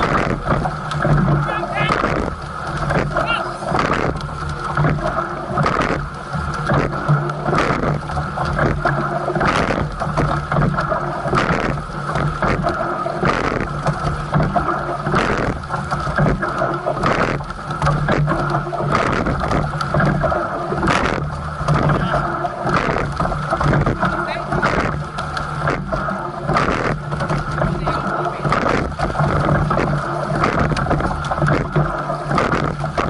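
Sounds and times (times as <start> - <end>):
oars clunking in oarlocks: 0.0 - 33.0
steady low hum: 0.0 - 33.0
water rushing along hull: 0.0 - 33.0
wind on microphone: 15.1 - 15.6, 26.5 - 33.0.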